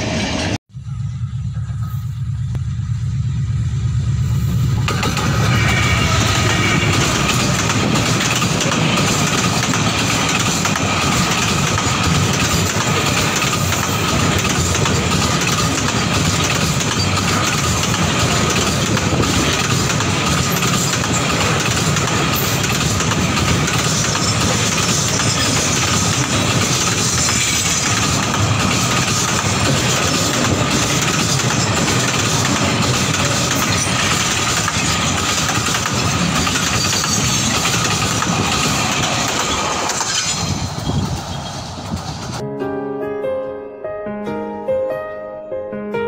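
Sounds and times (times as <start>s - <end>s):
train wheels rumbling on rails: 0.0s - 42.4s
thin steady whine: 0.7s - 4.8s
clickety-clack over rail joints: 4.8s - 42.4s.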